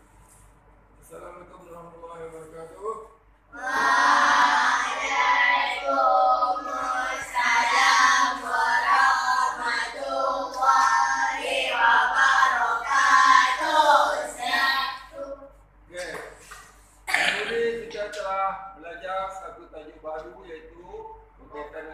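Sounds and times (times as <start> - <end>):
children singing: 3.6 - 15.1.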